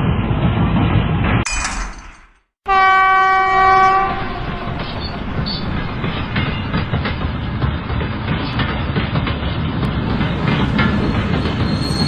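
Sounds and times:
train horn: 0:02.7 - 0:06.6
model train rumbling on track: 0:03.3 - 0:12.0.

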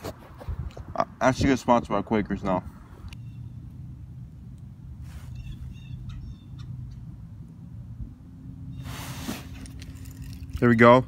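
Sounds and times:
wind rumbling on microphone: 0:00.0 - 0:03.6
faint bird chirps: 0:05.2 - 0:07.1
brief scratchy hiss: 0:08.8 - 0:09.7.

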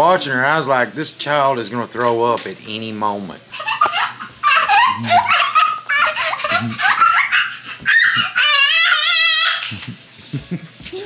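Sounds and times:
high wavering squeal of laughter: 0:03.5 - 0:10.4
toddler laughing: 0:03.5 - 0:11.0.

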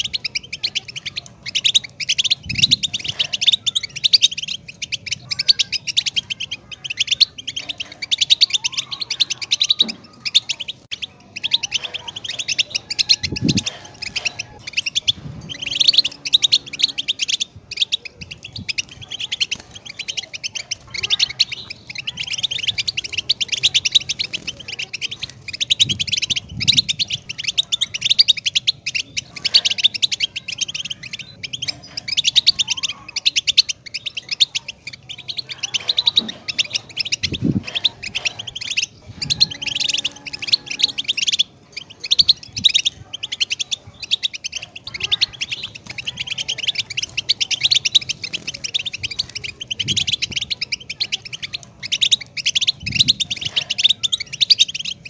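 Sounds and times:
goldfinch singing: 0:00.0 - 0:55.0.

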